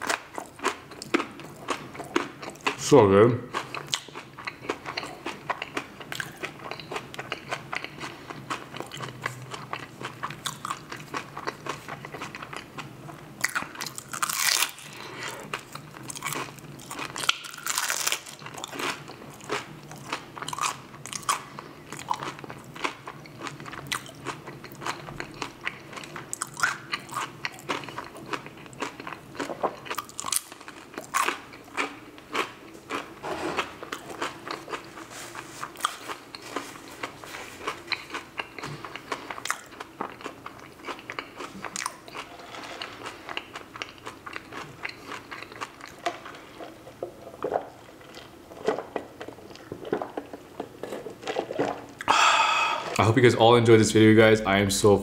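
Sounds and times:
wet chewing: 3.5s - 53.0s
crunchy bites of fried food: 13.4s - 34.9s.

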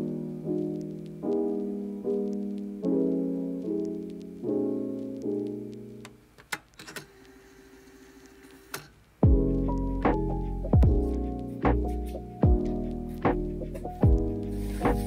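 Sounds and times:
soft piano chords: 0.0s - 6.4s, 9.2s - 15.0s.

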